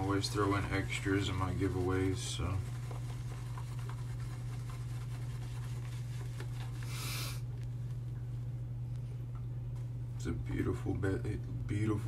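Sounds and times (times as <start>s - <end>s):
steady low hum: 0.0s - 12.0s
short hiss: 6.9s - 7.4s.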